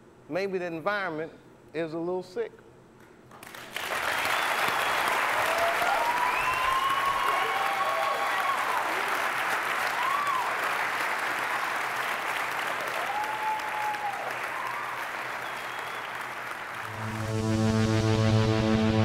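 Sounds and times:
audience applauding: 3.4 - 17.4
crowd cheering: 3.8 - 17.2
electronic music: 16.9 - 19.0.

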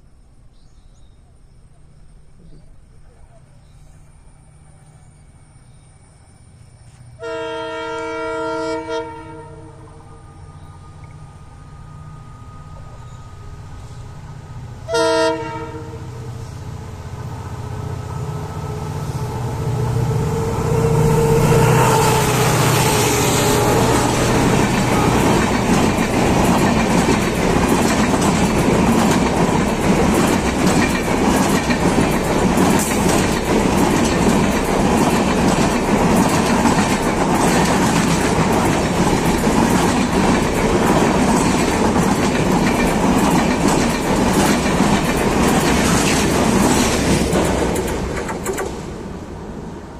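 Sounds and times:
diesel locomotive engine: 0.0 - 49.9
train horn blast: 7.2 - 13.9, 14.8 - 16.5, 17.7 - 25.9
train wheels clacking on rails: 17.1 - 49.0.

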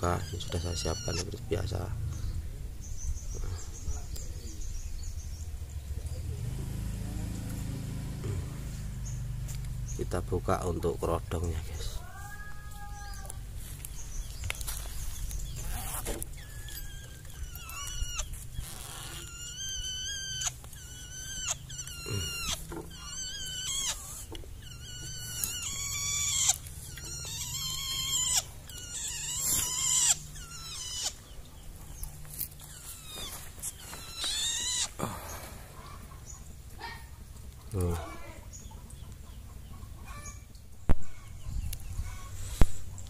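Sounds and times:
bird harsh whining calls: 0.0 - 5.2, 12.8 - 37.0.

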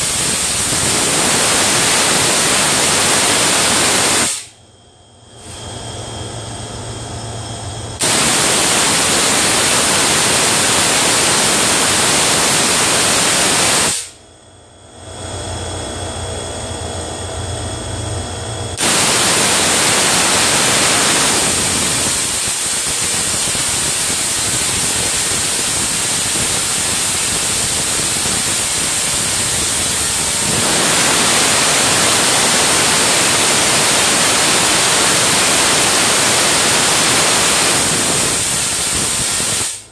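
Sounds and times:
tesla coil crackling hiss: 0.0 - 4.6, 8.0 - 14.2, 18.8 - 39.9.

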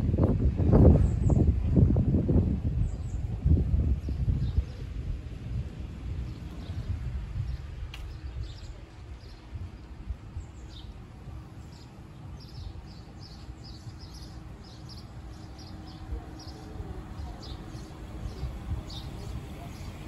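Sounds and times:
wind rumble on microphone: 0.0 - 20.0
small birds chirping: 6.1 - 20.0.

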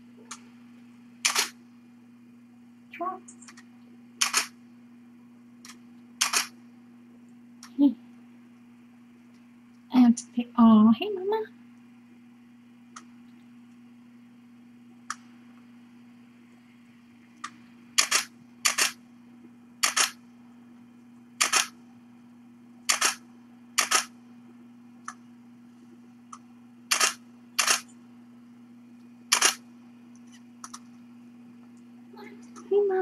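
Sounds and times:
camera shutter clicks: 1.2 - 1.6, 4.2 - 4.5, 6.2 - 6.5, 18.0 - 19.0, 19.8 - 20.2, 21.4 - 21.7, 22.9 - 23.2, 23.8 - 24.1, 26.9 - 27.9, 29.3 - 29.6.

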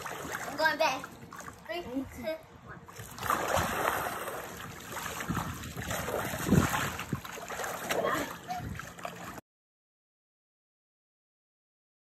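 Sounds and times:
water splashing in a pool: 0.0 - 2.0, 2.8 - 9.4.

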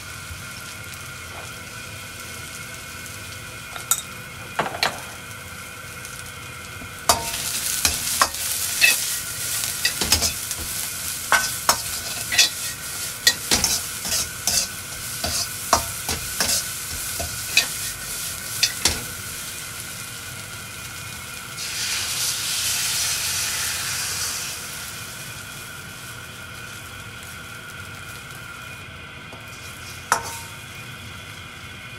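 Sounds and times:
egg sizzling in a wok: 0.0 - 31.9
green beans sizzling in a wok: 0.0 - 31.9
metal turner scraping and clinking: 7.1 - 9.1, 9.8 - 18.0, 18.6 - 19.1, 30.1 - 30.5.

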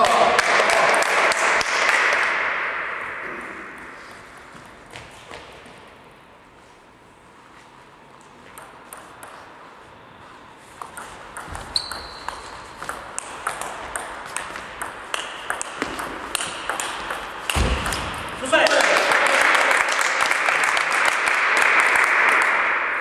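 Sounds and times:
table tennis ball clicking: 10.8 - 18.1.

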